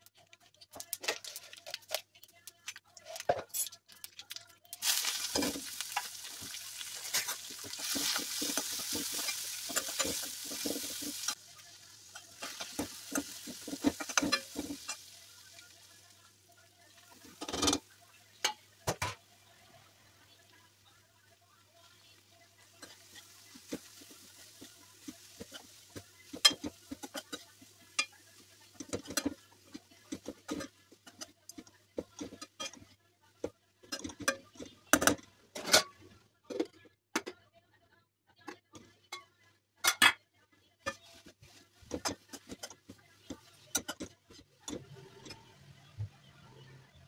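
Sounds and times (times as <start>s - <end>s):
metal spoon scraping metal pan: 4.9s - 11.4s, 12.1s - 15.1s.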